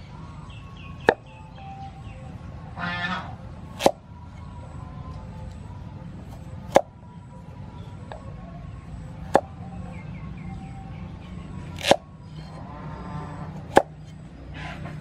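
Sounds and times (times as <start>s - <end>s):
cleaver chopping on wooden block: 3.7s - 4.0s, 6.7s - 6.9s, 11.8s - 12.0s, 13.7s - 14.0s.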